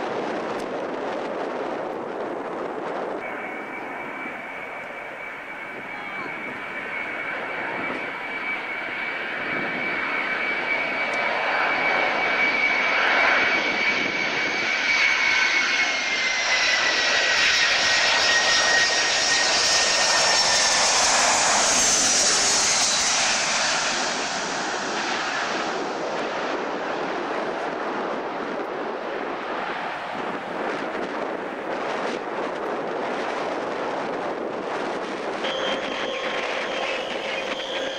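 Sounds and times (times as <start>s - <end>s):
jet engine whine: 0.0s - 37.9s.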